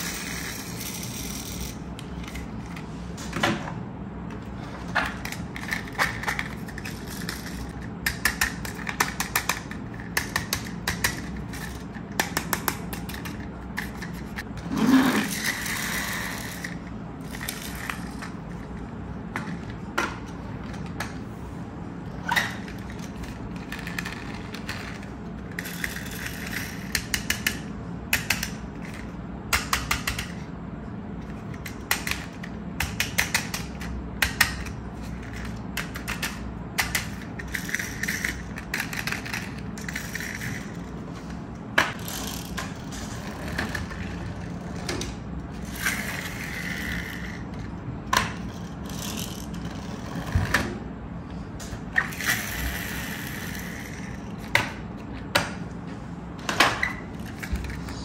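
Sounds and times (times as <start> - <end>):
rapid clicking of toy wheels: 31.3 - 40.9.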